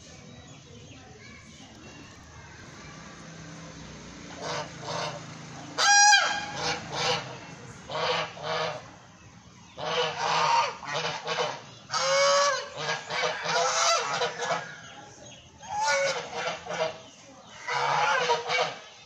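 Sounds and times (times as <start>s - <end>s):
geese honking: 4.3s - 9.0s, 9.7s - 19.0s.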